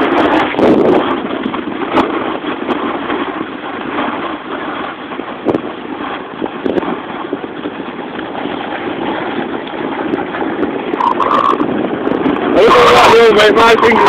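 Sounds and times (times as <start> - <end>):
snowboard scraping over snow: 0.0 - 10.9
wind on microphone: 0.0 - 14.0.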